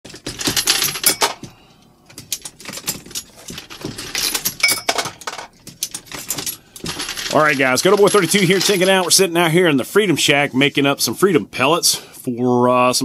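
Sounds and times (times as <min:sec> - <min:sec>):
metal cartridges clinking: 0:00.1 - 0:09.2.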